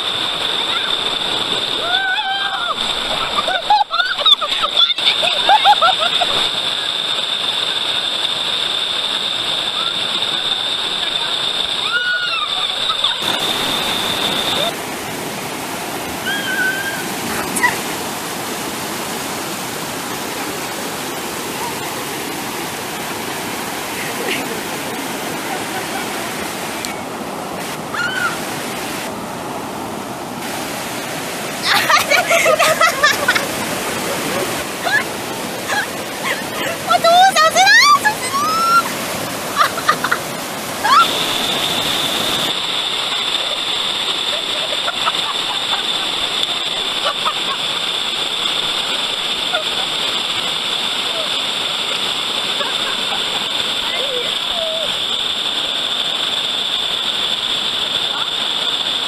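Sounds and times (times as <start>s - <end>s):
waterfall rushing over rock: 0.0s - 59.0s
high-pitched call: 11.8s - 14.8s.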